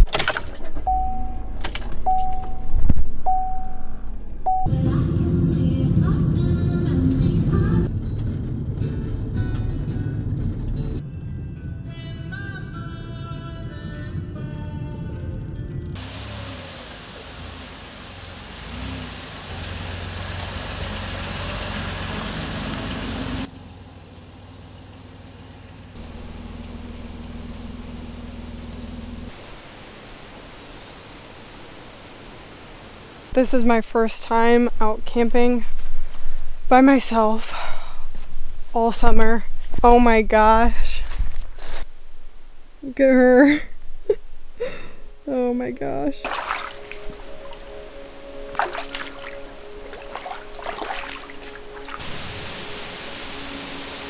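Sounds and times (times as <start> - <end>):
keys jingling: 0.0 - 0.9, 1.5 - 2.8
moving vehicle rumble: 0.0 - 46.2
suv engine running: 0.8 - 31.8
dashboard warning chime: 0.9 - 4.7.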